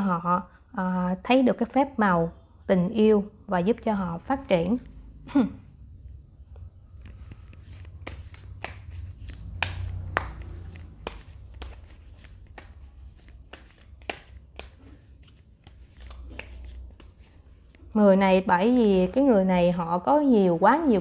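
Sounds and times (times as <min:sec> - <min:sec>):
low steady hum: 0:00.0 - 0:21.0
cards clicking and tapping: 0:07.0 - 0:17.8.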